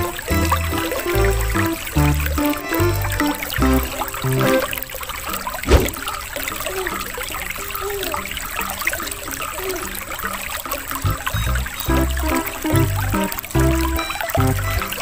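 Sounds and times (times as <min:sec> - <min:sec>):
aquarium water bubbling: 0:00.0 - 0:15.0
thump: 0:05.7 - 0:06.0.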